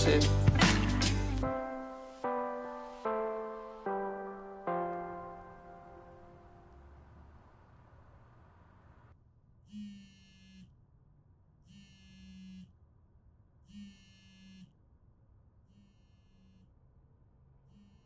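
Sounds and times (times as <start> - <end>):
mobile phone buzzing: 9.7 - 10.8, 11.6 - 12.8, 13.6 - 14.8, 15.7 - 16.8, 17.6 - 18.0.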